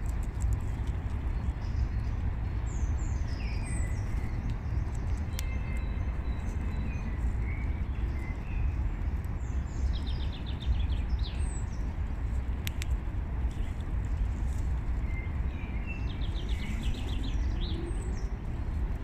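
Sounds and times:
songbirds singing: 0:00.0 - 0:19.0.

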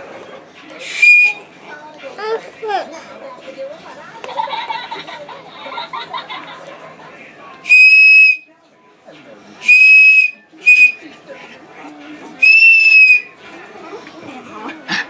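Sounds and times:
toy train whistle blasts: 0:00.8 - 0:01.4, 0:07.7 - 0:08.4, 0:09.6 - 0:11.0, 0:12.4 - 0:13.3.

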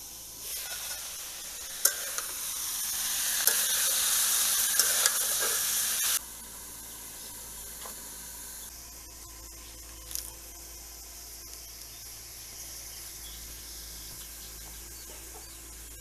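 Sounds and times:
vegetables sizzling in a wok: 0:00.0 - 0:16.0
metal spatula scraping: 0:00.5 - 0:02.5, 0:03.4 - 0:06.2.

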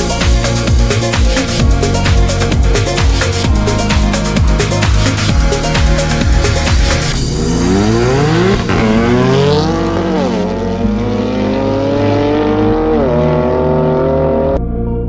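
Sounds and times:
car accelerating hard: 0:06.6 - 0:14.6.

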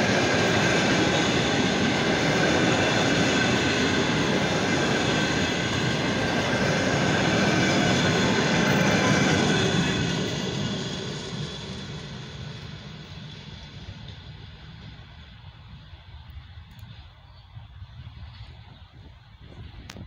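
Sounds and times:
train wheels on rails: 0:00.0 - 0:20.0.

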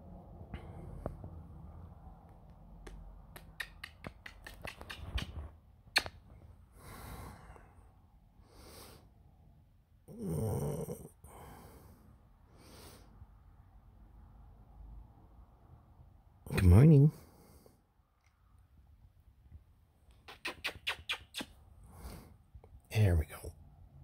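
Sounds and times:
quick clicks: 0:02.9 - 0:06.2.

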